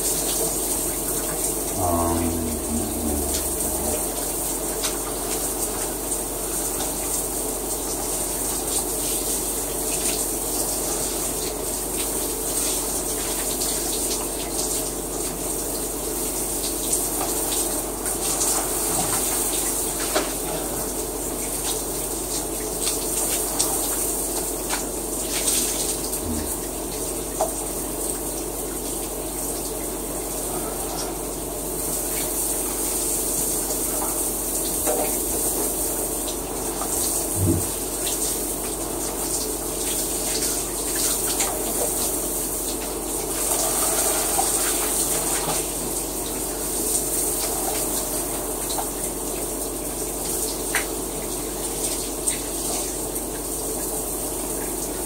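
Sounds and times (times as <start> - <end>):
shower water spraying: 35.4 - 48.3.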